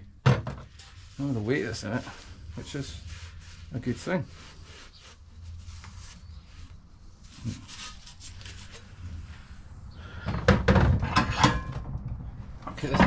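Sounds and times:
metal pipe rubbing and scraping: 0:04.4 - 0:09.6.

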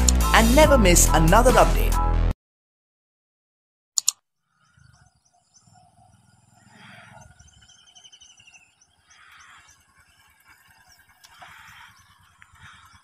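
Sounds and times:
bird warbling trill: 0:04.4 - 0:13.0
small birds chirping: 0:04.4 - 0:13.0.

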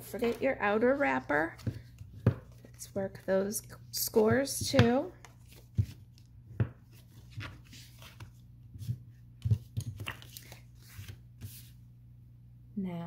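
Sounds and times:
paper tapping on a table: 0:01.5 - 0:02.6, 0:04.1 - 0:10.4.

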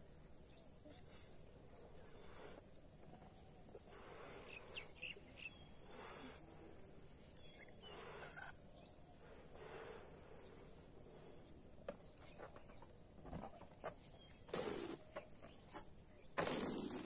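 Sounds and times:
steady high hiss: 0:00.0 - 0:11.8, 0:14.4 - 0:17.0
breathy puffs into balloons: 0:00.8 - 0:02.8, 0:03.7 - 0:05.1, 0:05.8 - 0:07.1, 0:14.5 - 0:17.0.

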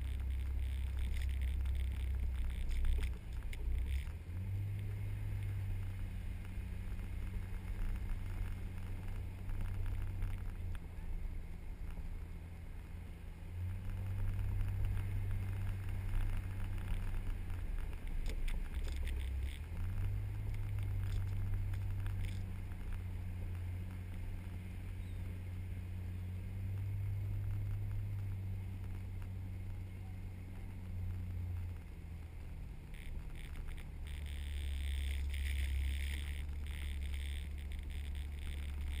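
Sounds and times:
ticks and rattles: 0:00.0 - 0:10.9, 0:13.8 - 0:24.6
vehicle engine driving on sand: 0:00.0 - 0:39.0.

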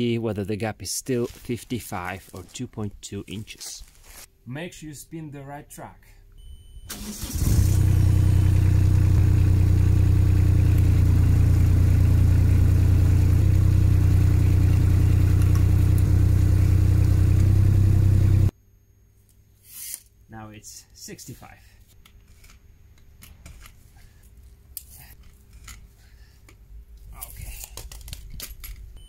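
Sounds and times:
mini excavator engine running: 0:06.9 - 0:18.5.

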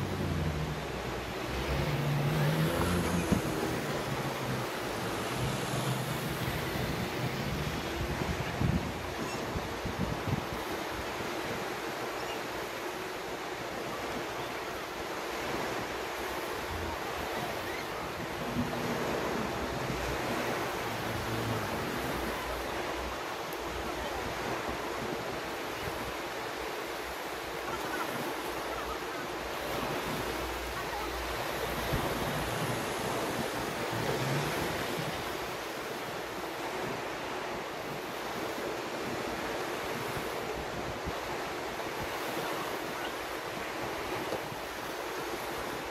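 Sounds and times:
wind buffeting microphone: 0:00.0 - 0:11.6
waves breaking on sand: 0:00.0 - 0:45.9.

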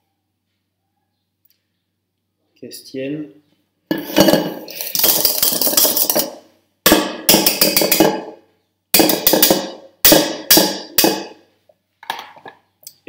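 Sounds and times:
whisk clattering in metal bowl: 0:03.9 - 0:08.3, 0:09.0 - 0:11.3.

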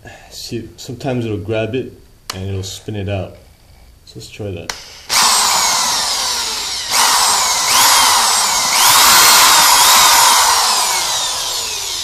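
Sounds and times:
electric drill whining: 0:04.7 - 0:12.0.

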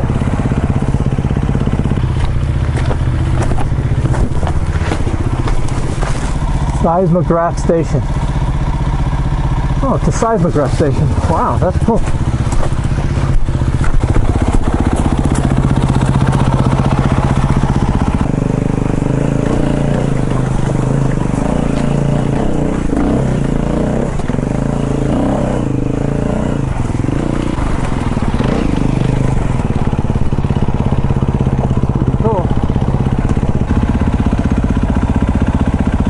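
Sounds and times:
dirt bike engine at low revs: 0:00.0 - 0:36.0.

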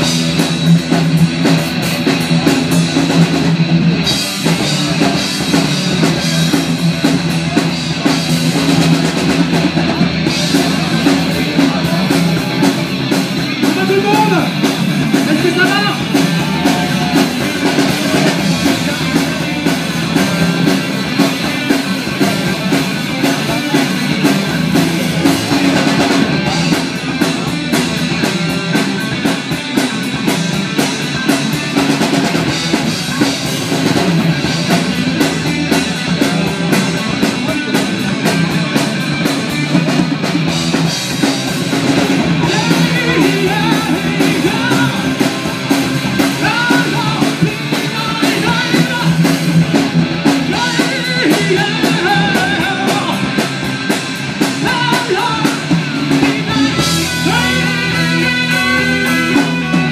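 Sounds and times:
drum kit beat: 0:00.0 - 0:59.9
live rock band playing: 0:00.0 - 0:59.9
person singing: 0:09.9 - 0:24.8, 0:42.0 - 0:53.7, 0:54.4 - 0:59.9.

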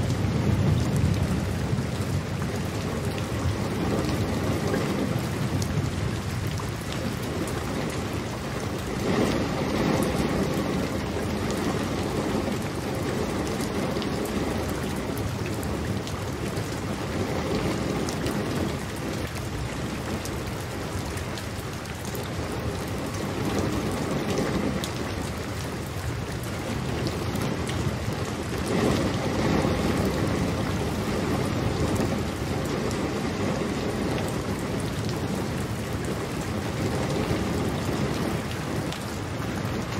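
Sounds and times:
heavy rain falling: 0:00.0 - 0:39.9.

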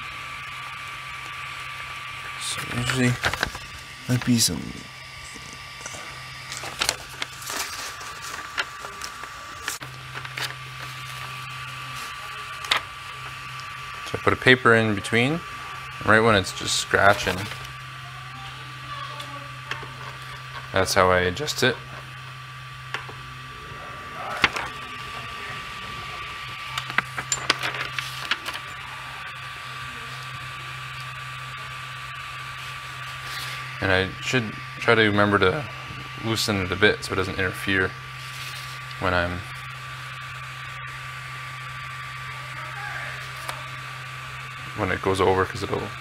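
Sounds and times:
three d printer hum and whine: 0:00.0 - 0:46.0
paper rustling and snapping: 0:06.5 - 0:11.2.

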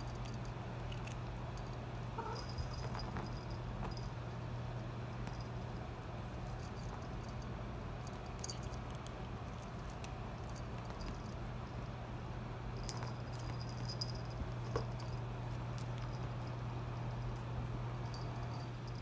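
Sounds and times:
cat collar bell jingling: 0:00.0 - 0:04.3, 0:12.8 - 0:19.0
steady low hum: 0:00.0 - 0:19.0.

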